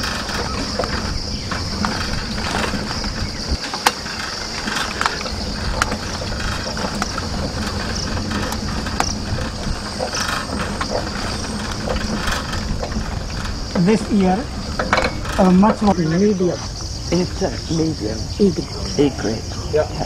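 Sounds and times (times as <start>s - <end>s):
clicks and knocks: 0.0s - 15.9s
low rumble: 0.0s - 20.0s.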